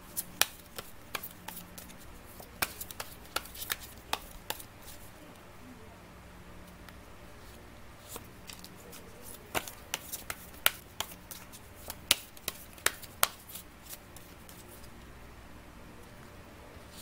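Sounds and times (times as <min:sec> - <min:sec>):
cards clicking and tapping on table: 0:00.4 - 0:04.6, 0:09.4 - 0:14.6.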